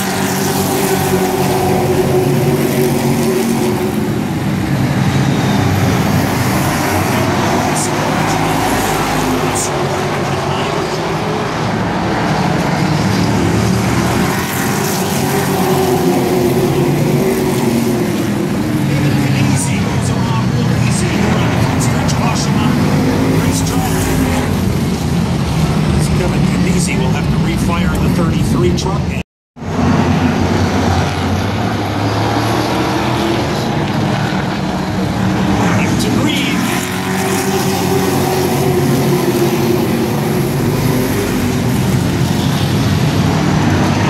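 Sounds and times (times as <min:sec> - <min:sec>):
race truck engines droning: 0:00.0 - 0:44.0.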